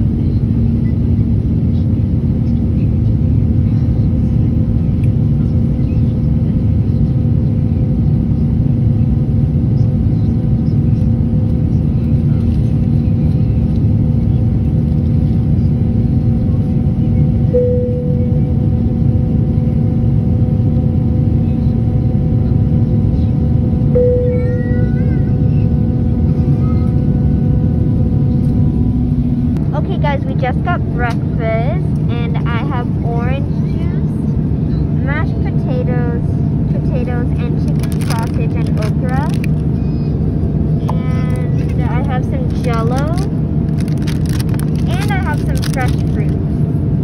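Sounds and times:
airliner engine and airflow rumble: 0:00.0 - 0:47.0
constant hum: 0:00.0 - 0:47.0
higher tone: 0:17.5 - 0:18.5, 0:23.9 - 0:25.2.

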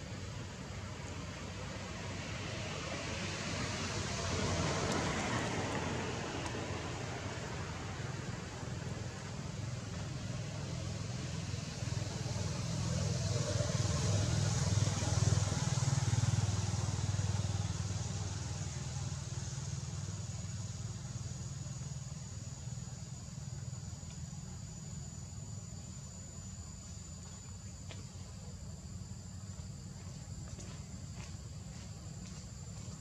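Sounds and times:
high-pitched insect drone: 0:09.6 - 0:33.0.

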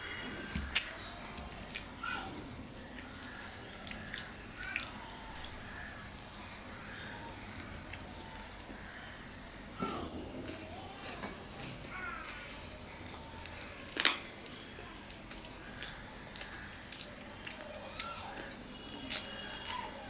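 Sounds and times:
person chewing food: 0:00.0 - 0:09.1, 0:14.8 - 0:20.0.

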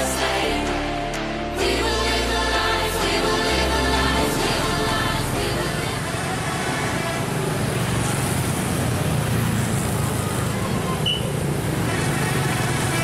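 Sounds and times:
motorcycles and car passing: 0:04.5 - 0:13.0.

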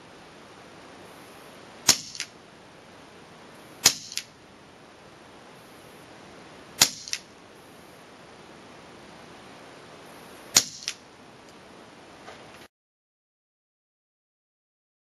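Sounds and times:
air rifle shots cracking: 0:01.8 - 0:02.4, 0:03.8 - 0:04.4, 0:06.8 - 0:07.3, 0:10.5 - 0:11.0.

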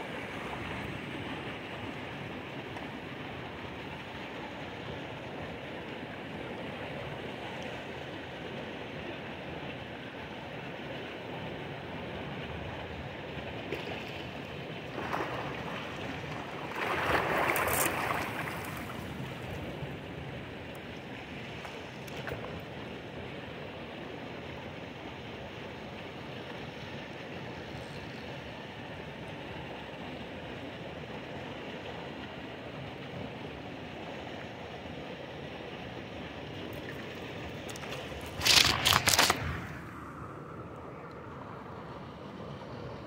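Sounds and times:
river flowing: 0:00.0 - 0:43.0
fish splashing: 0:15.0 - 0:19.5, 0:36.8 - 0:40.1.

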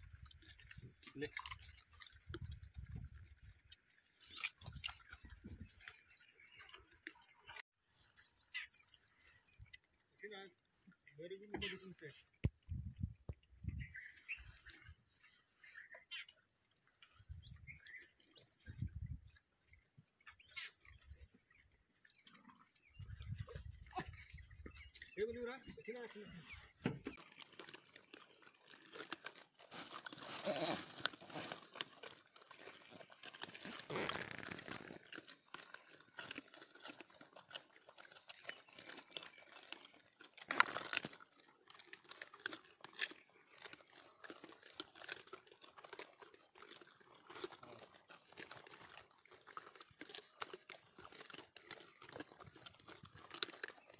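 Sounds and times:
monkey crunching raw carrot: 0:00.0 - 0:07.6, 0:23.2 - 0:53.9.

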